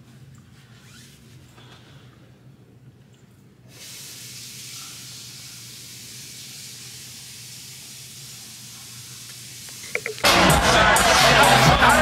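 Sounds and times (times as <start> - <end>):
steady hiss: 3.6 - 10.5.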